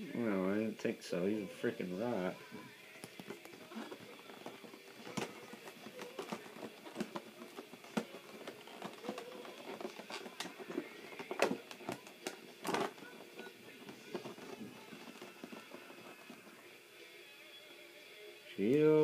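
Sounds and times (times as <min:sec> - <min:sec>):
plastic packaging clicks and rustles: 0:03.0 - 0:16.5.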